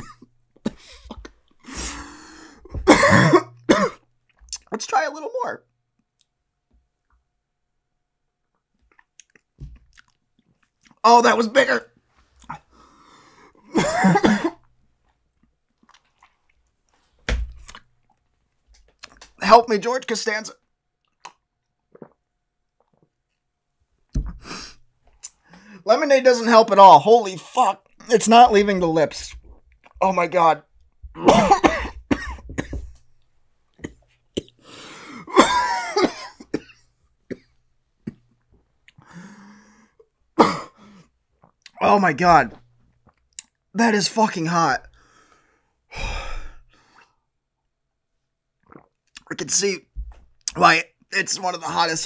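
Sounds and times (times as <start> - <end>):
man coughing: 0.0 - 1.3, 2.7 - 4.0, 13.7 - 14.6, 31.2 - 32.8, 35.1 - 37.5, 40.4 - 40.8
raspy breath: 0.8 - 2.7, 25.4 - 25.8, 34.6 - 35.3, 39.0 - 40.0, 45.0 - 47.2.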